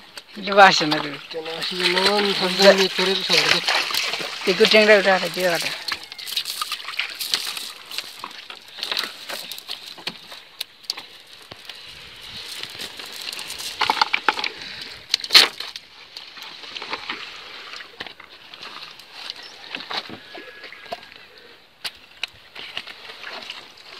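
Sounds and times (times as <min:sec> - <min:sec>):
cast net rustling: 0:00.0 - 0:19.9
fish flapping on wet concrete: 0:01.4 - 0:15.8.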